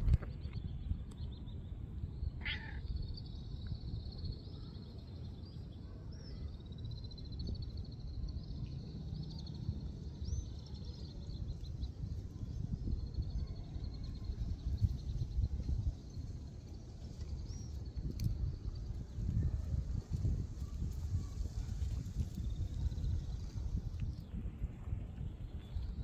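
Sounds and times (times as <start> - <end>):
steady low rumble: 0.0 - 26.0
faint high chirping: 2.1 - 15.9
cat meowing: 2.4 - 2.8.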